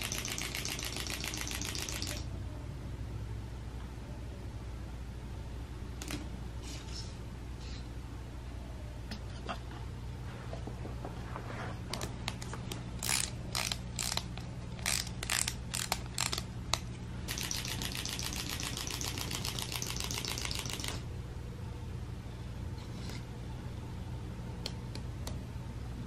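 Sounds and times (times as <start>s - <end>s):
wind-up toy clockwork: 0.0s - 2.2s, 17.3s - 21.0s.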